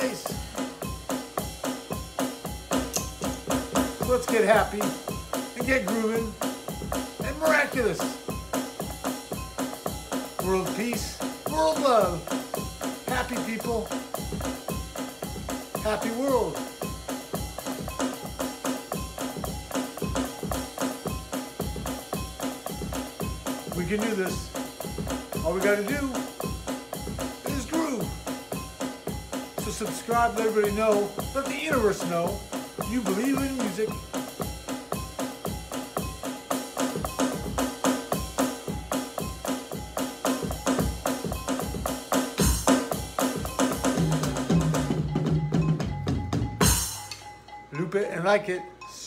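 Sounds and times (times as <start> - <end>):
drum kit groove: 0.0 - 48.6.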